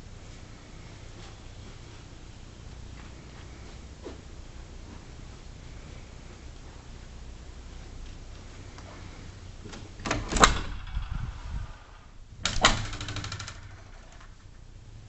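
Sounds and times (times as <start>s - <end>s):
closet doors clattering open: 9.7s - 14.5s.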